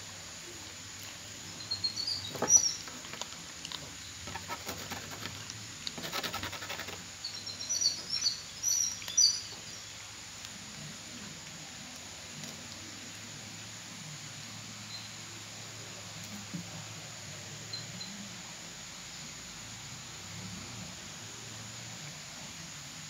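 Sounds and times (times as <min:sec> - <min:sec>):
small birds chirping: 0:01.1 - 0:10.1
cats crunching dry kibble: 0:02.8 - 0:06.1.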